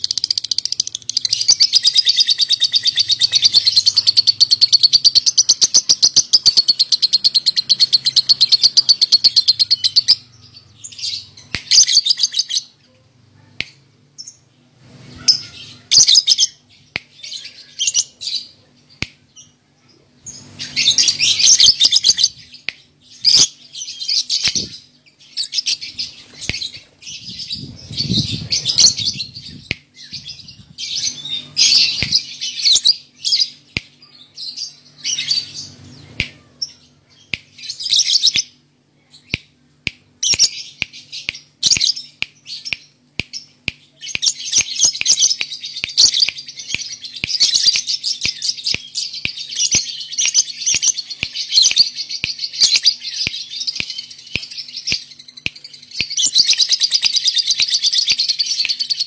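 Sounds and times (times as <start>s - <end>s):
bird chirps and chatter: 0.0s - 59.0s.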